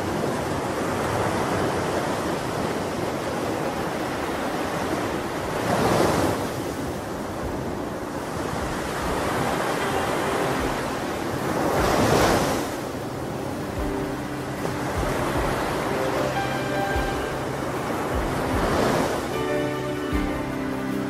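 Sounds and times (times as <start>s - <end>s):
sea waves breaking: 0.0s - 21.0s
faint music tones: 8.5s - 21.0s.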